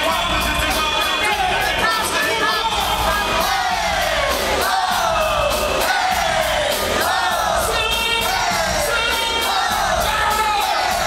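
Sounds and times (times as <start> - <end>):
audience crowd: 0.0 - 11.0
loud live concert music: 0.0 - 11.0
vocals singing: 0.0 - 11.0.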